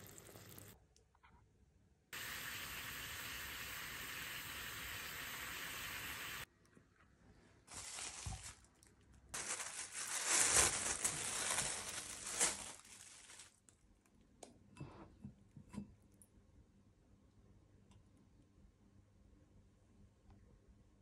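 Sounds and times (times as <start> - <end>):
plastic bag rustling: 7.7 - 13.7.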